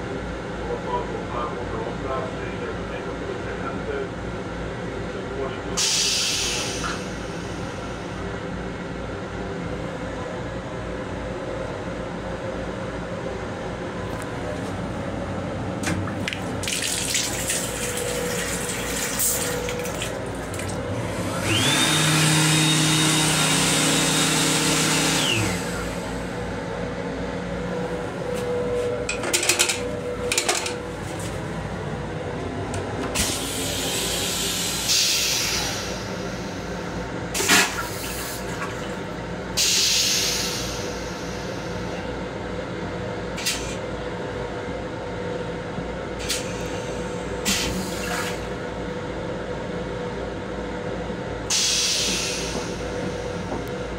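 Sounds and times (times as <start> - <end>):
train hum: 0.0 - 53.9
hand dryer blowing: 16.6 - 26.3, 51.5 - 53.1.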